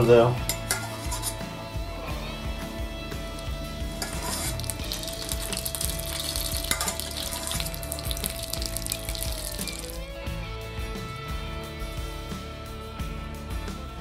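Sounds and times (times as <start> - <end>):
faint background music: 0.0 - 14.0
butter and egg sizzling in a pan: 3.4 - 10.2.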